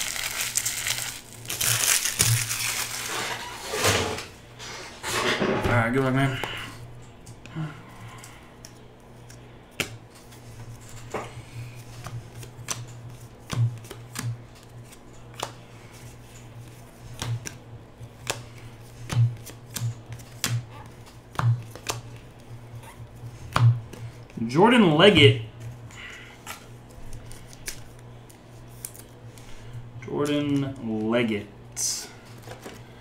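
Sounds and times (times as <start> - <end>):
trading cards flipped by hand: 8.2 - 22.6, 26.4 - 29.5.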